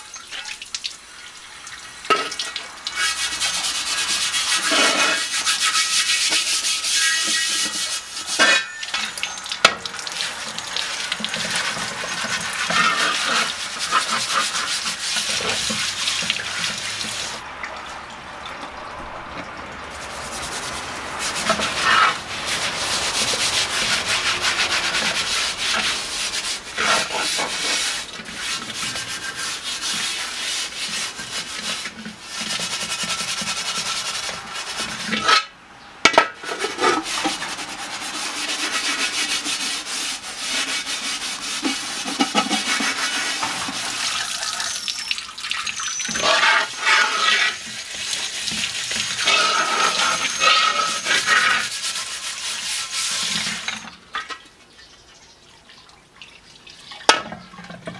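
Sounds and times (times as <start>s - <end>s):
hose water running into pan: 0.0s - 35.5s, 36.1s - 54.8s
metal scourer scraping iron pan: 2.1s - 9.8s, 11.3s - 17.4s, 20.0s - 45.0s, 45.7s - 54.4s.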